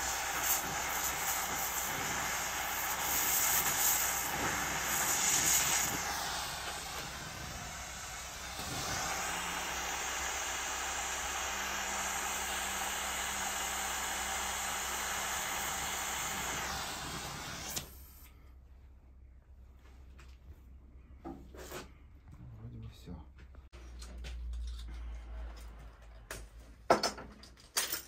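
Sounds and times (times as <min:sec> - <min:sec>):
gas torch flame hissing: 0:00.0 - 0:18.2.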